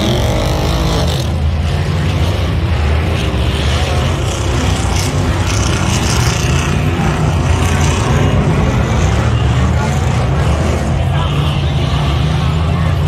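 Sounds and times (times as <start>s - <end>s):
off-road car engine running: 0.0s - 13.0s.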